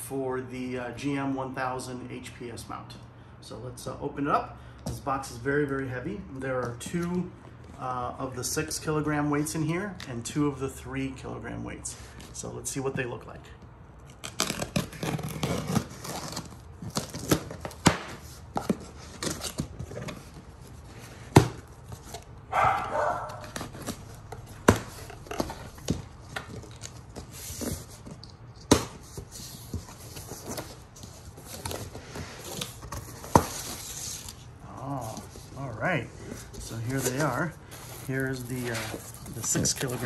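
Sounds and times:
tape tearing: 14.0s - 35.6s, 36.7s - 40.0s
knife slitting packing tape: 14.1s - 19.7s
cardboard scraping and rustling: 14.1s - 40.0s.

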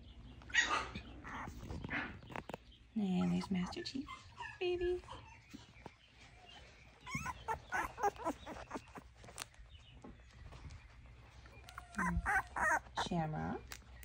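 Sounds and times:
puppies whining and yipping: 0.5s - 2.5s, 3.1s - 9.5s, 10.5s - 13.2s
faint puppy whimpers: 0.6s - 1.9s, 3.0s - 5.6s, 6.3s - 9.1s, 11.6s - 13.2s.

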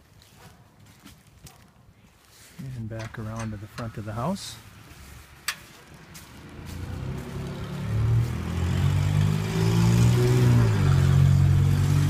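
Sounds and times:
vehicle engine running: 6.1s - 12.0s.

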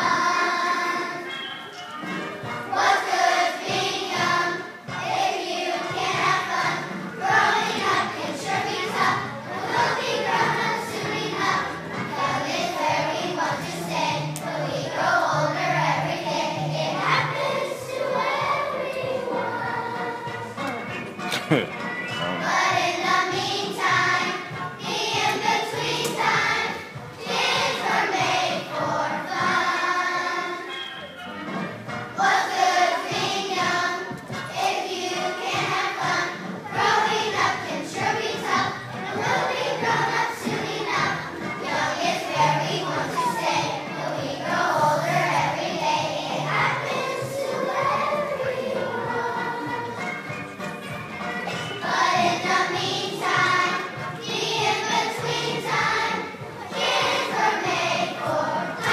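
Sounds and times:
children's choir singing: 0.0s - 58.9s
musical accompaniment: 0.0s - 58.9s.

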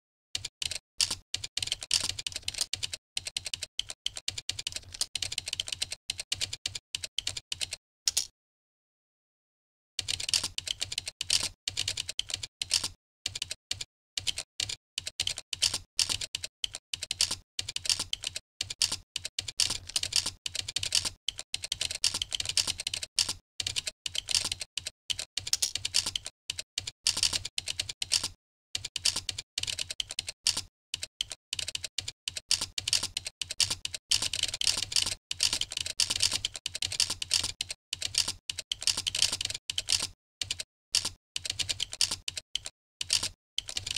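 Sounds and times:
typing on computer keyboard: 0.4s - 8.3s, 10.0s - 43.9s.

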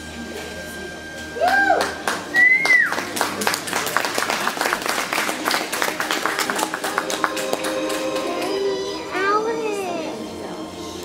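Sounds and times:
audience clapping: 1.4s - 8.7s.

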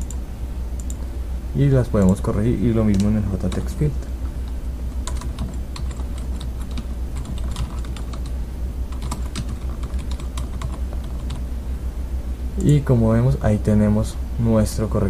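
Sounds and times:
low steady hum: 0.0s - 15.0s
keyboard keystroke clicks: 0.8s - 1.0s.

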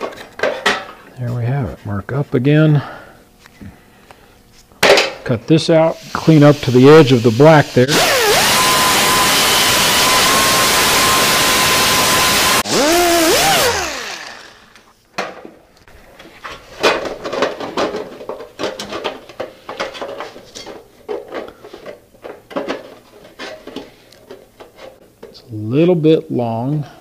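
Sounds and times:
air disc grinder whining: 5.9s - 14.9s.

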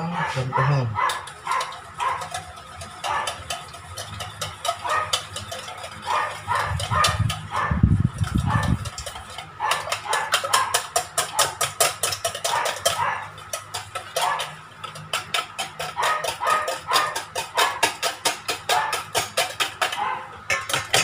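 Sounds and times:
whisk clicking against metal bowl: 1.0s - 21.0s.

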